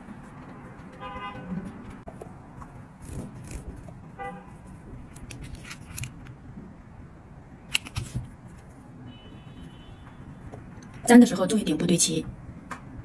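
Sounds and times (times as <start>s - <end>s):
handling clicks and rustles: 0.0s - 6.7s, 7.7s - 8.8s.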